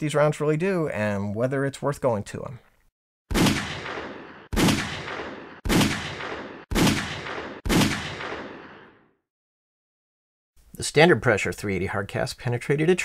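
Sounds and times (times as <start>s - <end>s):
pistol shots: 3.3s - 9.0s.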